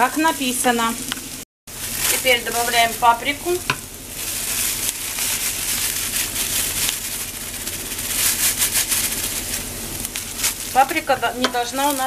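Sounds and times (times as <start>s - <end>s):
onion sizzling in a frying pan: 0.0s - 12.0s.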